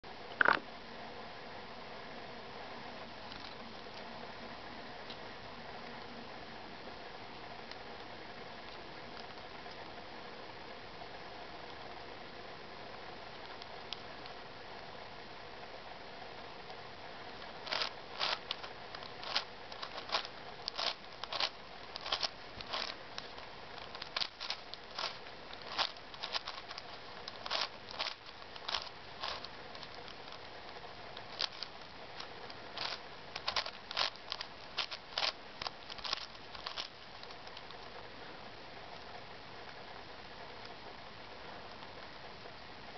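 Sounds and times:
faint hiss: 0.1 - 42.9
plastic puzzle clicking: 17.7 - 30.2.

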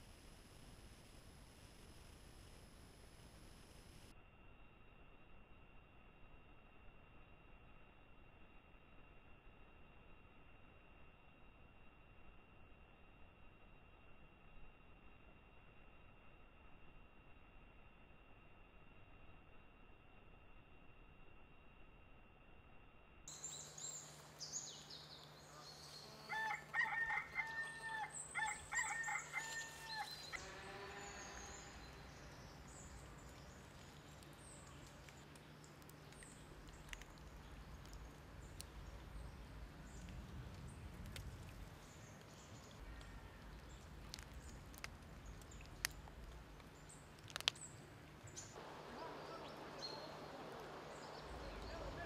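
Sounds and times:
small birds chirping: 23.3 - 52.0
rooster crowing: 26.1 - 31.8.

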